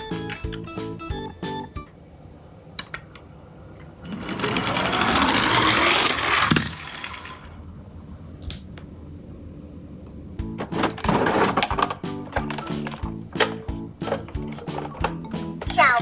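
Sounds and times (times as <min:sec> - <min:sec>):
toy truck wheels whirring: 0:04.1 - 0:07.5.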